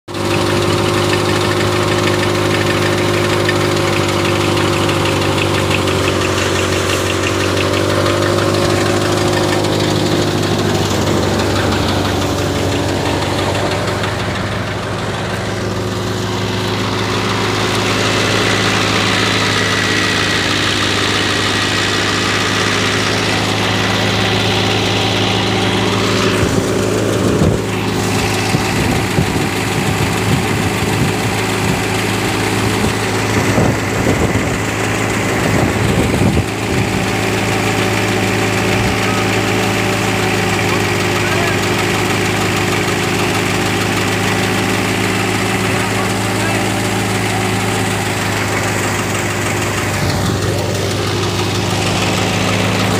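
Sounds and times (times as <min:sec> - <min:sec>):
tractor diesel engine running: 0:00.0 - 0:52.9
thresher threshing wheat: 0:00.1 - 0:52.9.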